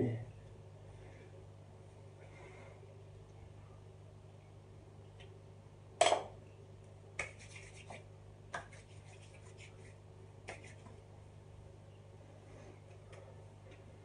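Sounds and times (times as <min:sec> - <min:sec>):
hands rubbing hair product: 0:07.2 - 0:10.9
scratchy rubs in hair: 0:07.2 - 0:11.0.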